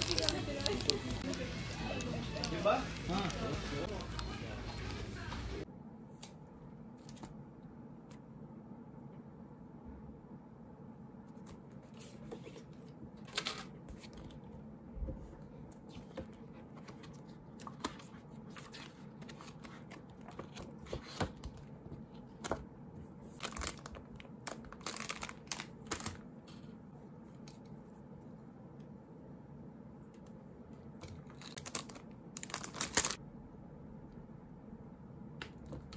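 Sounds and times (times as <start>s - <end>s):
plastic packaging crinkling: 0.0s - 5.2s, 23.3s - 26.2s, 31.0s - 33.2s.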